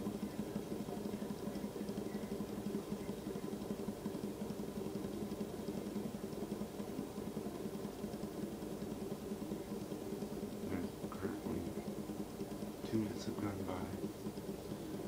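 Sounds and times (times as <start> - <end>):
fidget spinner whirring: 0.0 - 15.0.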